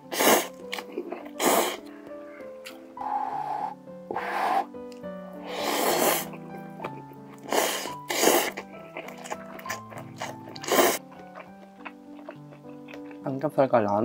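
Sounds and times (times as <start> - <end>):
background music: 0.0 - 14.0
person slurping noodles: 0.1 - 1.9, 3.0 - 4.7, 5.4 - 6.4, 7.4 - 11.0.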